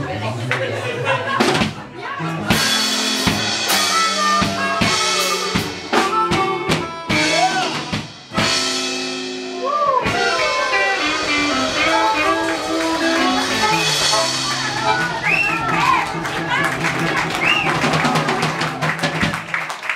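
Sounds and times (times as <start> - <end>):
electric blues band playing: 0.0 - 19.8
drum kit rimshots: 1.3 - 19.8
bending lead guitar notes: 2.2 - 18.9
stepping bass line: 10.1 - 19.3.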